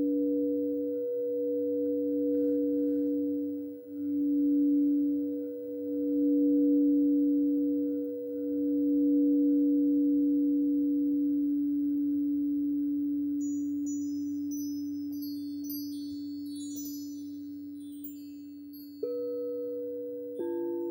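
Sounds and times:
bright metal chime notes: 13.4 - 19.8
singing bowls ringing: 13.4 - 20.9.

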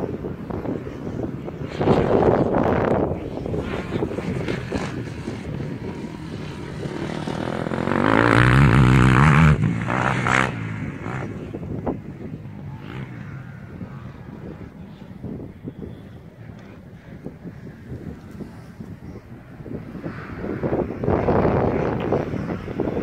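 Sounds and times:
dirt bike engine revving: 3.4 - 12.0.

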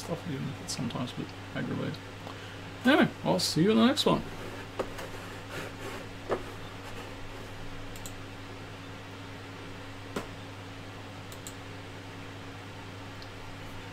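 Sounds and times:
low electrical hum: 0.0 - 13.9
faint clicks: 7.9 - 8.2, 11.3 - 11.6.

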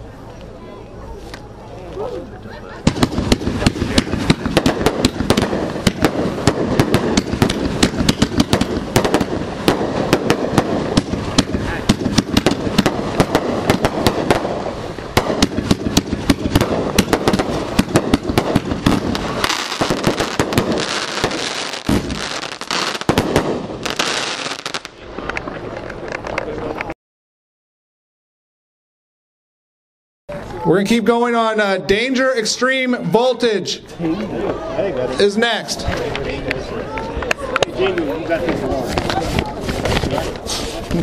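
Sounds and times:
firework crackling: 2.8 - 26.9, 38.8 - 41.0
aerial firework bangs: 2.9 - 22.2, 23.0 - 24.6.

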